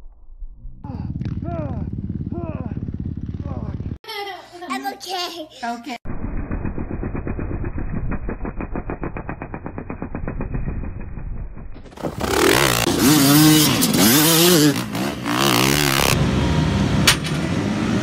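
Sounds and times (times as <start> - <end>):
dirt bike engines revving: 0.9 - 4.0, 12.0 - 18.0.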